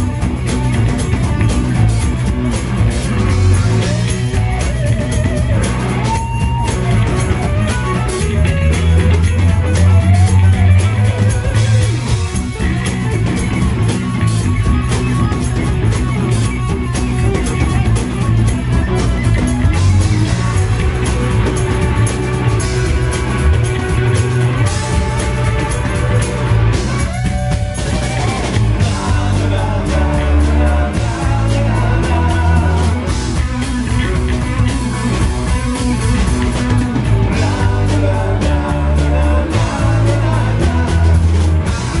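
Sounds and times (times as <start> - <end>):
drum kit: 0.0 - 42.0
electric bass: 0.0 - 42.0
electric guitars: 0.0 - 42.0
person singing: 27.8 - 35.1, 35.8 - 42.0.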